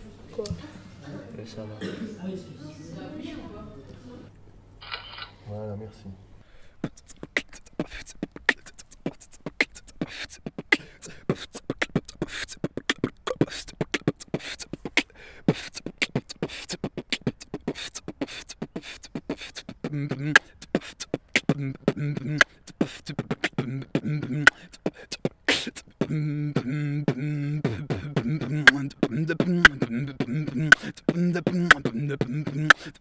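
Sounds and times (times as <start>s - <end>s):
human beatboxing: 6.8s - 33.0s.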